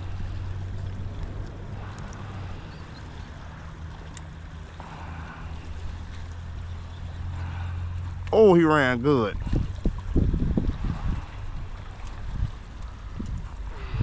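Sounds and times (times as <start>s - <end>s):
wind on microphone: 0.0s - 4.1s, 9.4s - 14.0s
flowing canal water: 0.0s - 14.0s
low hum: 0.0s - 14.0s.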